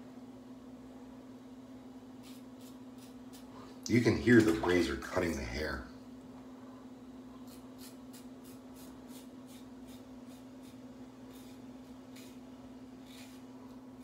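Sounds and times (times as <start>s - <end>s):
steady low hum: 0.0s - 14.0s
razor rasping on stubble: 2.2s - 3.5s, 7.4s - 13.6s.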